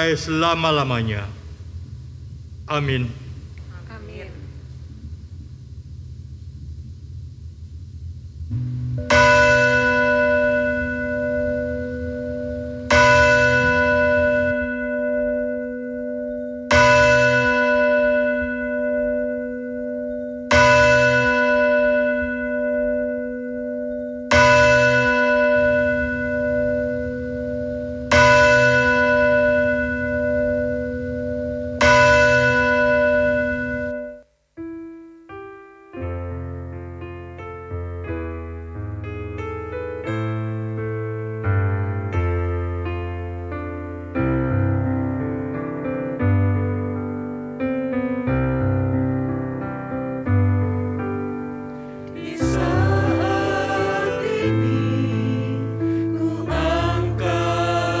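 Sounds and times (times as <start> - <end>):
piano playing: 8.5 - 58.0
bell ringing: 9.1 - 34.3.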